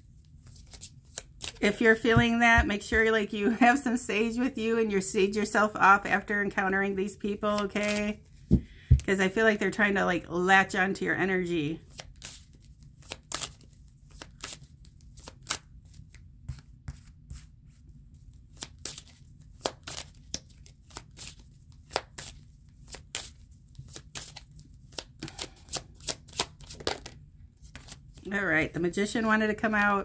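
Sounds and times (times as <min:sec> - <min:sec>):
faint low room hum: 0:00.0 - 0:30.0
cards shuffled by hand: 0:00.2 - 0:02.7, 0:11.9 - 0:17.5, 0:18.2 - 0:28.3.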